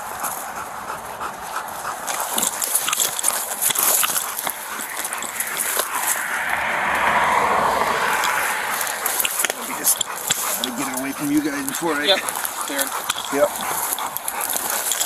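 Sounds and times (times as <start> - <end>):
leaves and branches rustling: 0.0 - 15.0
twigs snapping: 2.0 - 6.7, 8.0 - 15.0.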